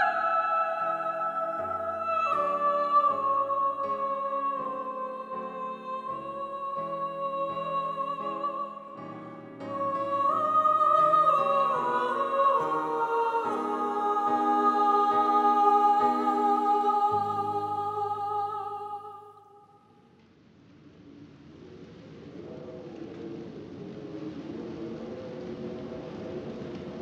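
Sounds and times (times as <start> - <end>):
slow film score music: 0.0 - 19.6.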